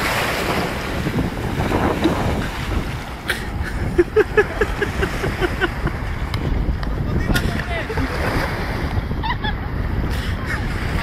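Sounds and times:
breaking surf: 0.0 - 11.0
wind buffeting microphone: 0.0 - 11.0
person laughing: 3.3 - 6.0, 9.2 - 9.6.

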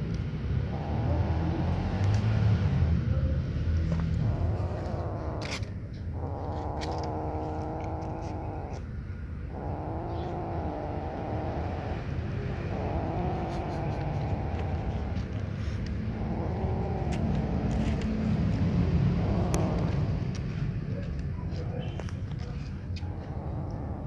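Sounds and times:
steady low rumble: 0.0 - 24.0
kitten growling: 0.5 - 20.6, 22.6 - 24.0.

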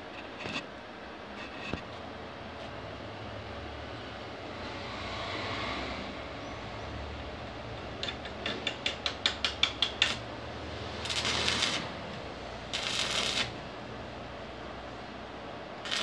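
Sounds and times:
welding arc snaps: 8.0 - 10.3, 10.9 - 13.6
arc welding crackle: 8.0 - 13.9, 15.8 - 16.0.

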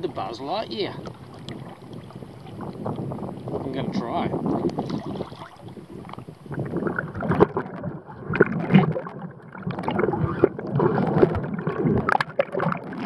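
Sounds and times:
muffled underwater gurgling: 0.0 - 13.0
water around a kayak: 0.0 - 13.0
wind: 0.0 - 13.0
knocks and pops: 6.7 - 13.0.

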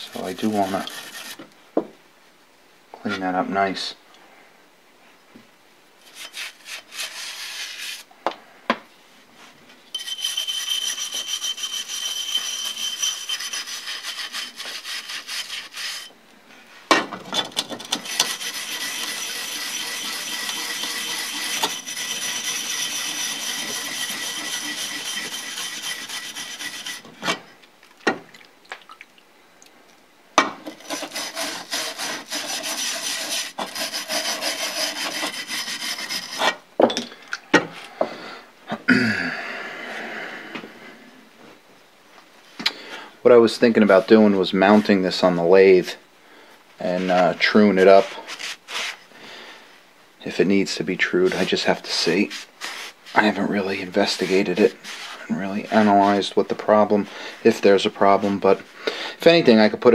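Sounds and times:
brush scrubbing metal: 0.0 - 1.4, 6.1 - 8.1, 10.0 - 16.1, 17.5 - 27.2, 30.7 - 36.6, 50.7 - 56.3.

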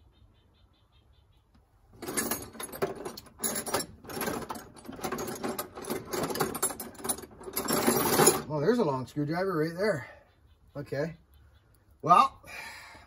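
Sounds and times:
metal hand tools clattering: 2.0 - 8.6.

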